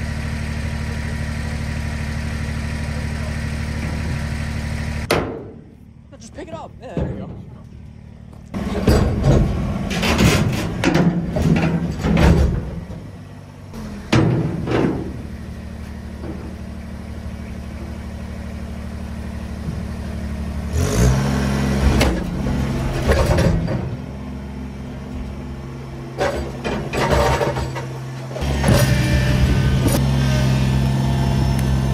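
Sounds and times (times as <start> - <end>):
tractor diesel engine running: 0.0 - 31.9
sharp knocks and clanks: 5.1 - 5.7, 8.5 - 13.1, 14.1 - 15.3, 21.8 - 24.0, 26.2 - 29.1.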